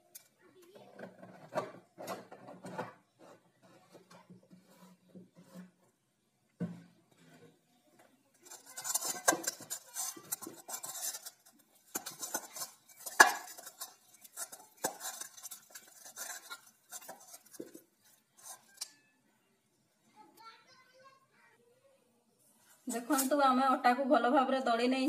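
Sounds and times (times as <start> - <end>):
dough kneaded in metal bowl: 0.0 - 19.1.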